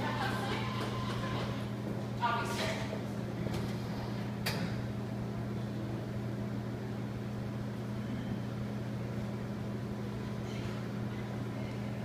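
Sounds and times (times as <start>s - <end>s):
coffee machine humming: 0.0s - 12.0s.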